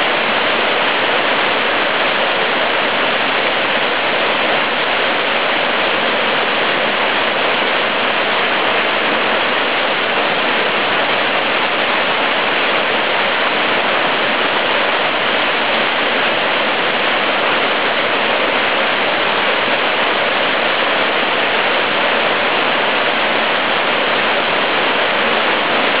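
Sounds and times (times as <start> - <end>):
small waterfall splashing: 0.0 - 26.0.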